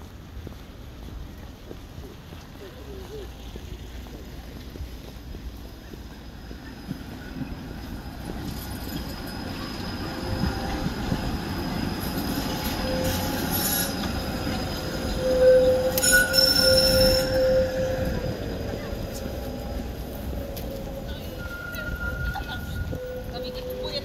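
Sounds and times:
tram rolling: 0.0 - 24.0
steel wheels squealing on rails: 5.5 - 24.0.

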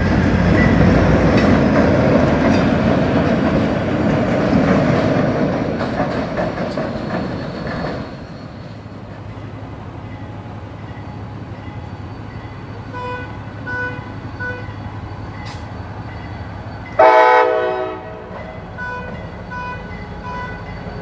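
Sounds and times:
passing train rumble: 0.0 - 21.0
crossing signal bell dinging: 9.3 - 21.0
train horn blast: 12.9 - 14.8, 17.0 - 20.6.

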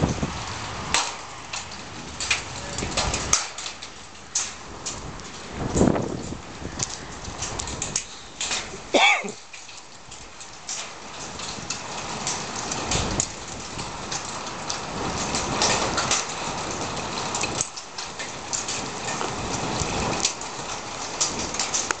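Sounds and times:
rain falling: 0.0 - 22.0.

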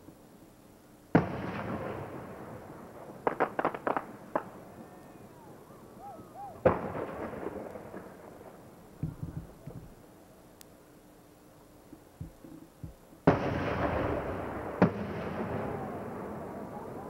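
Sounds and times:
firework crackling reports: 1.0 - 17.0
firework booms: 1.1 - 4.6, 6.6 - 10.0, 12.2 - 17.0.

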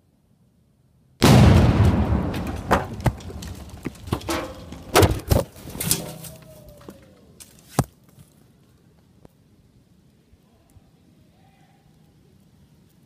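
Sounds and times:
explosion rumble: 1.2 - 5.2
debris thudding and clattering: 1.2 - 6.4.

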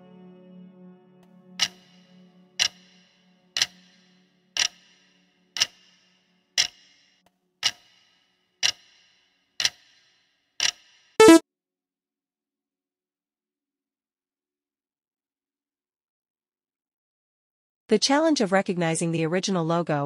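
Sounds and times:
pitched timer alert: 11.2 - 11.4.

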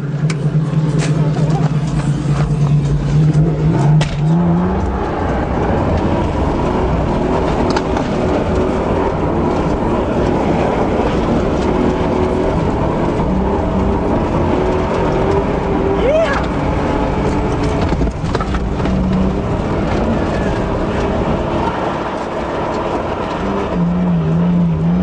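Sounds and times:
car engine rushing: 0.0 - 25.0.

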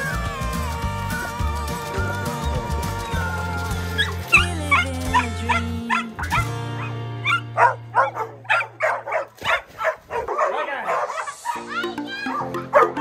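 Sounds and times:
background music with low notes: 0.0 - 9.2, 10.9 - 13.0
dog barking: 4.0 - 11.6, 12.3 - 13.0.

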